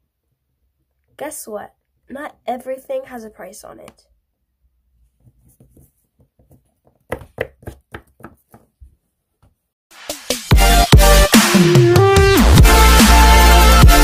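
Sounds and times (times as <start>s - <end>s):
plastic figurine tapping on tabletop: 5.7s - 8.7s
electronic music: 10.0s - 14.0s.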